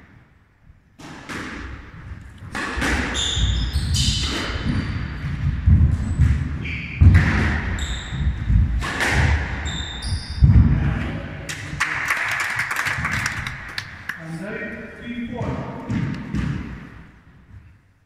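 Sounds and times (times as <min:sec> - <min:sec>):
squash ball thudding: 0:01.0 - 0:11.2, 0:15.3 - 0:17.6
shoes squeaking on court: 0:02.1 - 0:10.6.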